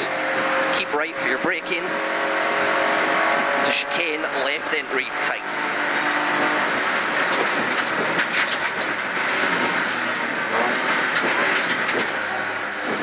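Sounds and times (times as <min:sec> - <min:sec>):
car engine running hard: 0:00.0 - 0:13.0
road and tyre noise: 0:00.0 - 0:13.0
clicks and rattles: 0:07.1 - 0:13.0.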